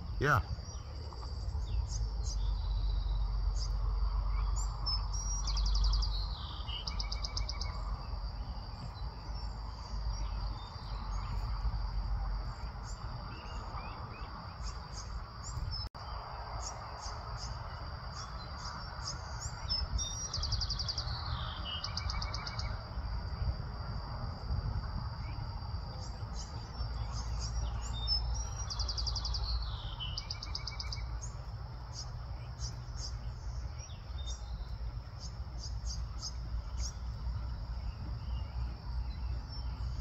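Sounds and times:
low rumble: 0.0s - 21.6s
birds chirping: 0.0s - 23.6s, 25.1s - 40.0s.

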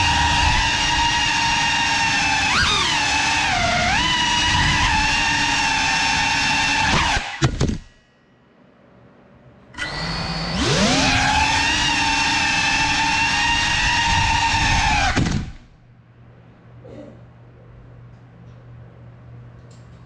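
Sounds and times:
drone motors whining: 0.0s - 7.8s, 9.8s - 15.7s.

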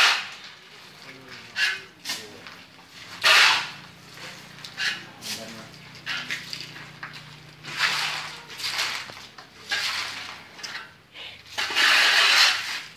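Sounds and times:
shovel scraping gravel: 0.0s - 12.9s.

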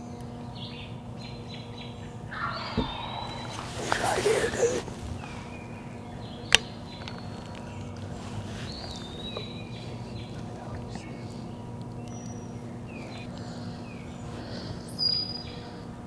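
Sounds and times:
small birds chirping: 0.0s - 16.0s
steady hush: 2.3s - 6.4s.

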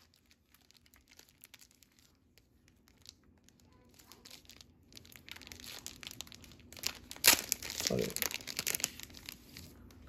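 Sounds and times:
plastic crinkling and rustling: 0.0s - 10.0s.

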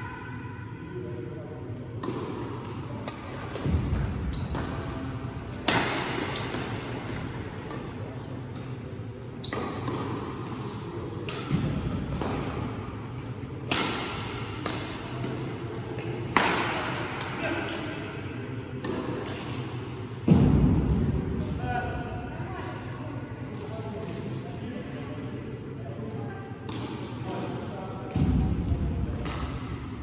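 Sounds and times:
rackets hitting shuttlecock: 2.0s - 8.9s, 11.2s - 12.8s, 13.6s - 17.8s, 18.8s - 19.7s, 29.2s - 29.8s.

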